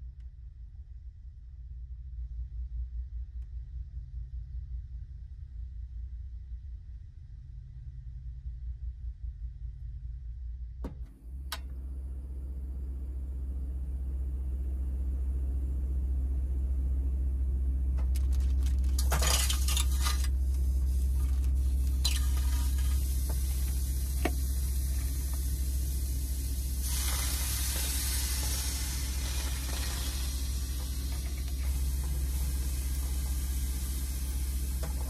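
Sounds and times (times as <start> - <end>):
sausages sizzling in frying pan: 20.8 - 34.8
water hissing in hot pan: 20.8 - 34.8.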